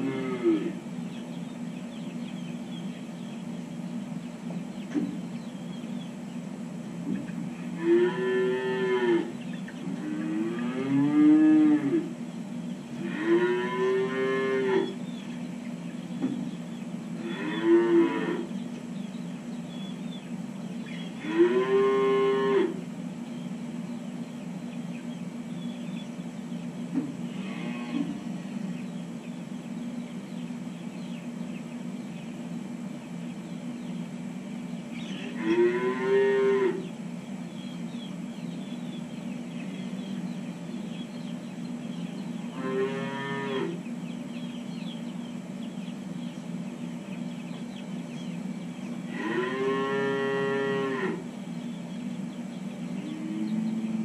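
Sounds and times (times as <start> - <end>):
calves mooing: 0.0 - 0.8, 7.7 - 12.1, 13.0 - 15.0, 17.2 - 18.5, 21.2 - 22.8, 27.3 - 28.6, 35.2 - 36.9, 42.5 - 43.8, 49.1 - 51.3
steady low hum: 0.0 - 54.0.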